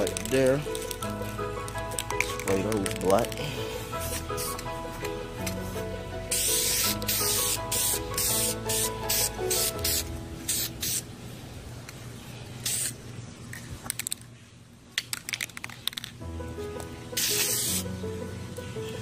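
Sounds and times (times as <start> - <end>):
aerosol spray can bursts: 4.0 - 4.7, 6.3 - 11.0, 12.6 - 13.0, 17.2 - 17.9.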